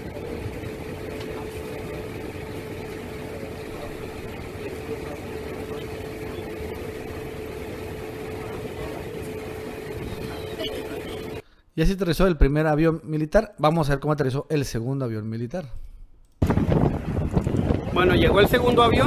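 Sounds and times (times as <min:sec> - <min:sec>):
jet engines whining: 0:00.0 - 0:11.4.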